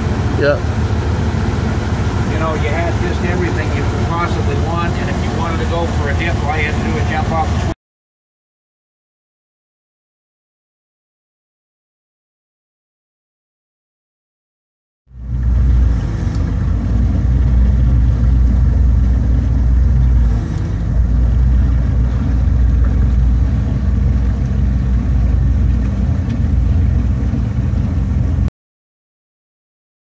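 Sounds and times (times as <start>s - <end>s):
motorboat engine rumble: 0.0s - 7.8s, 15.1s - 28.5s.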